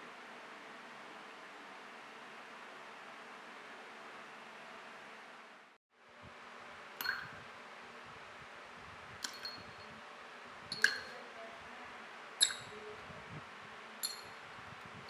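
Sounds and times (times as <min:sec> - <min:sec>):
metal parts clinking against glass: 0:09.2 - 0:09.9, 0:10.7 - 0:11.1, 0:12.4 - 0:12.7, 0:14.0 - 0:14.4.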